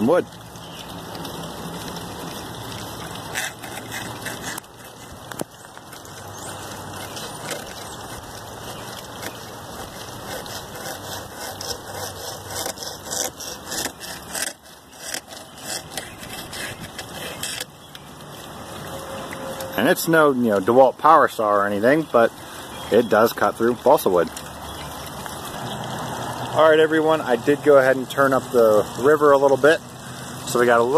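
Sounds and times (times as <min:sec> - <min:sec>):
water splashing onto wheel: 0:00.0 - 0:30.9
hacksaw rasping through wood: 0:03.3 - 0:17.7.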